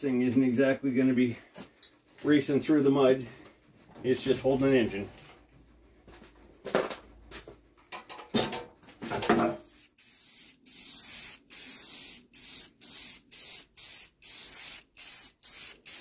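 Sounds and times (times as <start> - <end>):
spray paint can hissing: 9.6 - 16.0.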